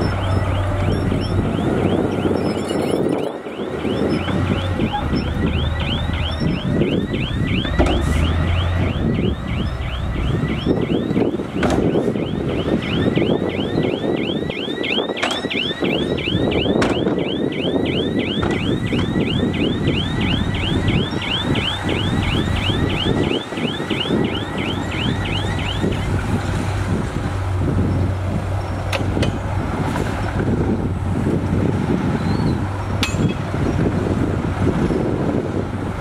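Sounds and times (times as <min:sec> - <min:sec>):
chirping reverse warning alarm: 0:00.0 - 0:26.2
diesel truck engines running: 0:00.0 - 0:36.0.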